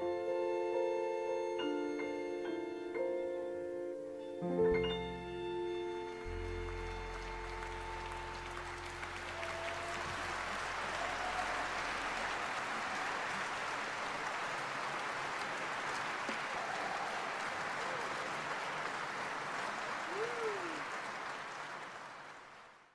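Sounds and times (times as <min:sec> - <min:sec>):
audience applauding: 0:06.3 - 0:22.9.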